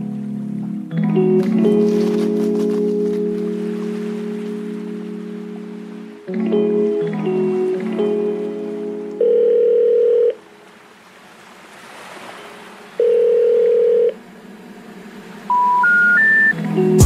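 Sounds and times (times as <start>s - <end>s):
long low telephone tones: 6.3s - 10.5s, 13.0s - 14.2s
rising three-note telephone tones: 9.2s - 10.4s, 13.0s - 14.2s, 15.5s - 16.6s.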